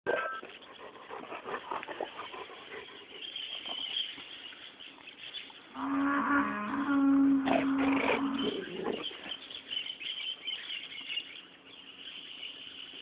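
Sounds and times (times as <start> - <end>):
dogs growling in play: 5.8 - 9.4.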